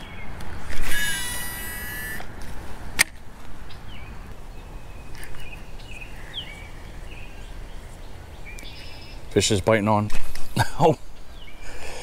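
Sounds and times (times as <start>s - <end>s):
fishing reel spool whirring: 0.8s - 2.3s
small birds chirping: 2.8s - 12.0s
sharp click: 3.0s - 3.2s.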